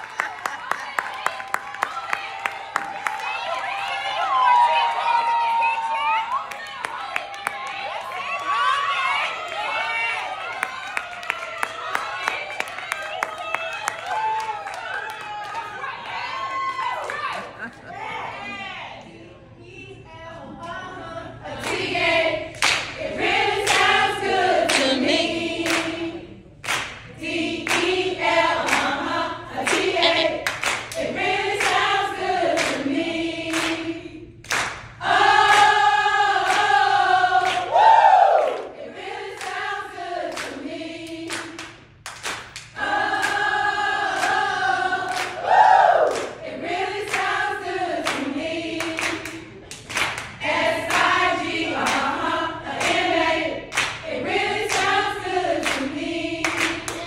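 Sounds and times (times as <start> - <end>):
women singing and chanting: 15.6 - 26.5, 27.1 - 34.4, 35.0 - 41.7, 42.7 - 49.7, 50.3 - 57.0.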